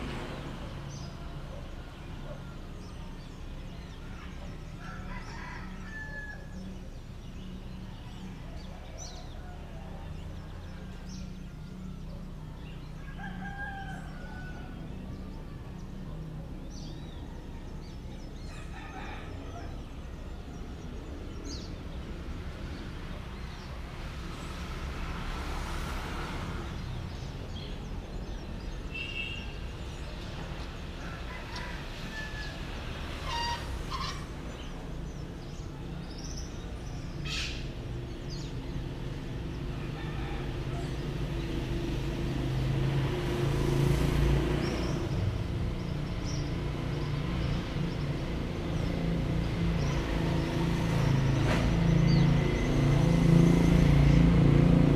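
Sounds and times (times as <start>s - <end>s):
birds chirping: 0.0s - 54.9s
roosters crowing: 4.5s - 6.8s, 12.9s - 15.2s, 16.8s - 20.6s, 30.5s - 34.7s, 39.2s - 43.4s.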